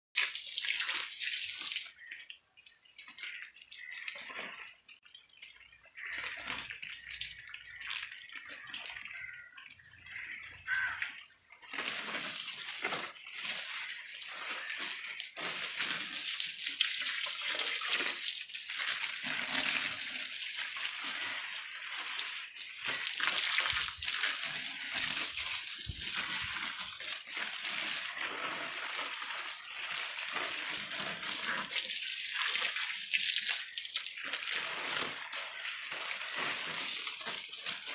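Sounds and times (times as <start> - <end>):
water spraying on leaves: 0.2 - 2.1, 11.6 - 37.9.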